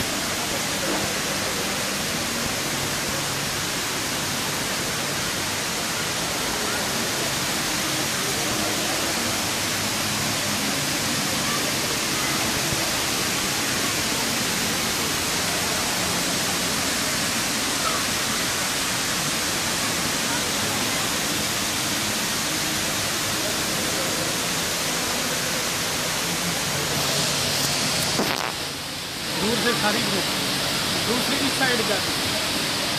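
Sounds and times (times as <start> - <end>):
water rushing down a wall: 0.0 - 32.9.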